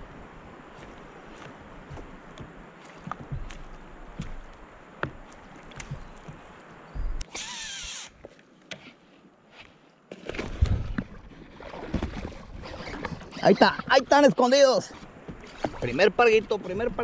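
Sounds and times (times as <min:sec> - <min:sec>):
fishing reel spool whirring: 0:07.3 - 0:08.2.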